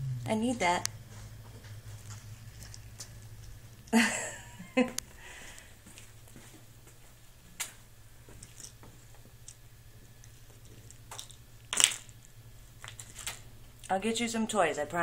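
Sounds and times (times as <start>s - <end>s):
faint low hum: 0.0s - 15.0s
plastic pill bottles clicking: 11.1s - 12.1s.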